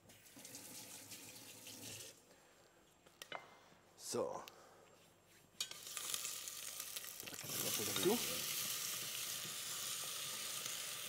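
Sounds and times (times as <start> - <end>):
food sizzling in frying pan: 5.6 - 11.0.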